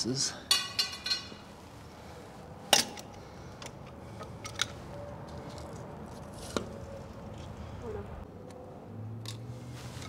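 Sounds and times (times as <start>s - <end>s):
metal tools clinking: 0.5s - 1.5s.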